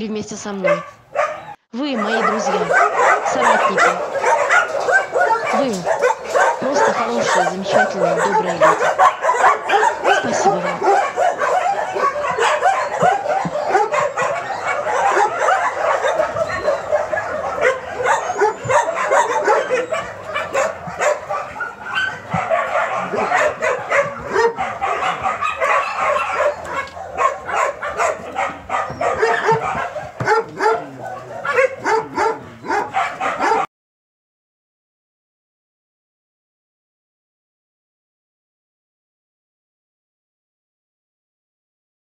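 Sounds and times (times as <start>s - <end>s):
puppies yapping: 0.5s - 33.7s.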